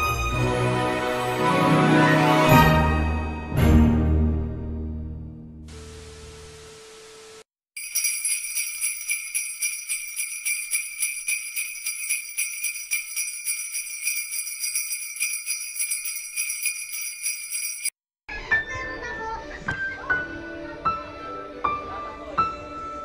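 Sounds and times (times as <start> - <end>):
sleigh bells shaken: 7.8 - 18.0.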